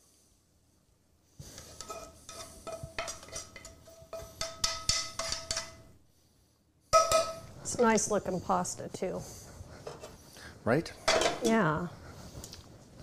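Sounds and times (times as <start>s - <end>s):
metal tongs clinking on skillet: 1.7s - 5.8s, 7.0s - 8.0s.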